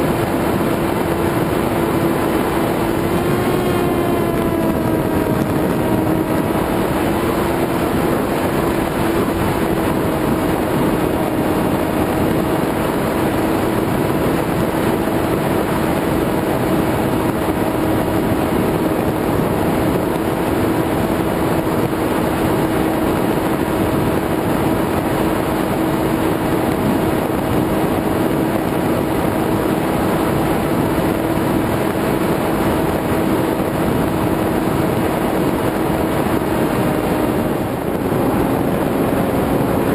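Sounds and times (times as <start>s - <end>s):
electric motor propeller whine: 0.0s - 39.9s
wind rushing: 0.0s - 39.9s.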